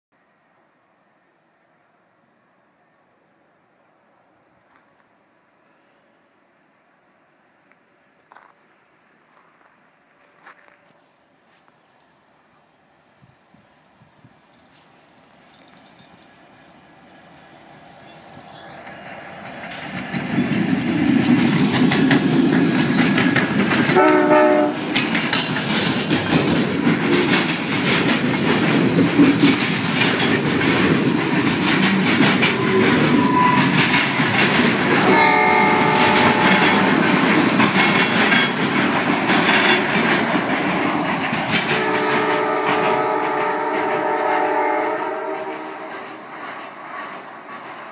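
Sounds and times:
freight train roaring past: 0:00.2 - 0:47.9
wheels clacking over rail joints: 0:15.4 - 0:47.9
train horn blast: 0:23.9 - 0:24.8, 0:34.9 - 0:37.0, 0:41.7 - 0:46.2.

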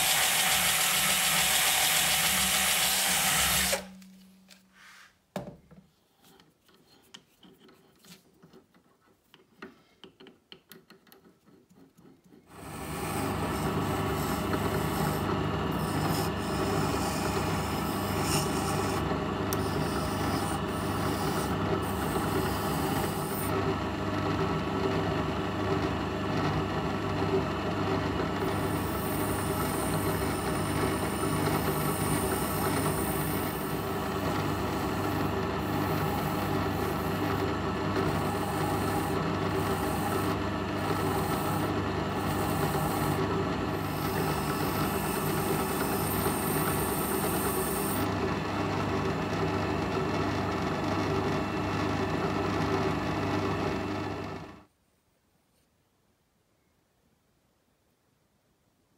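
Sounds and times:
drill press motor hum: 0:00.0 - 0:04.2, 0:12.5 - 0:54.7.

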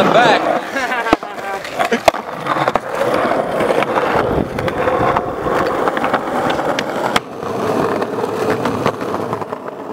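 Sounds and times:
skateboard wheels rolling on asphalt: 0:00.0 - 0:09.9.

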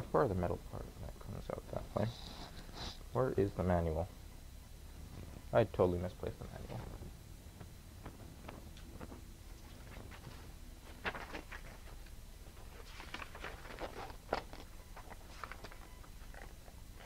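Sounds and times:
paper pages rustling: 0:08.4 - 0:16.5.

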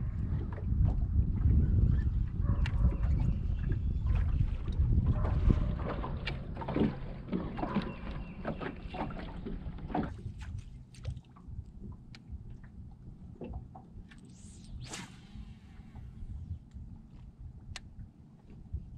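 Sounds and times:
water against boat hull: 0:00.0 - 0:14.3
wind rumbling on microphone: 0:00.0 - 0:18.9.

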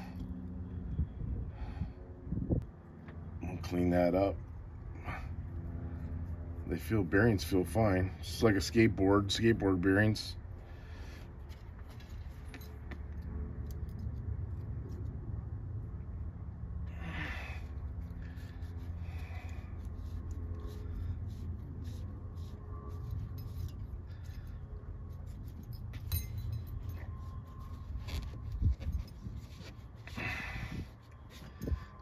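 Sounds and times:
steady low hum: 0:00.0 - 0:32.0
small metal parts clinking: 0:25.5 - 0:27.2.

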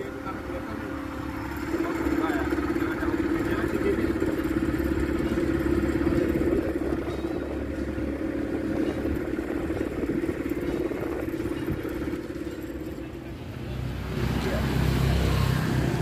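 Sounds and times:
motorboat engine running: 0:00.0 - 0:16.0
wind and water noise: 0:02.6 - 0:13.2.

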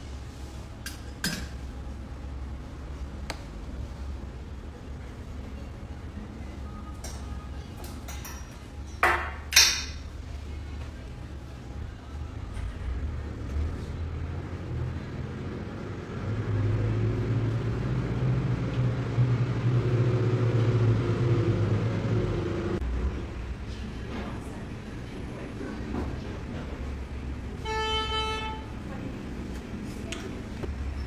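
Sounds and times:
vehicle engine rumble: 0:10.1 - 0:31.0.

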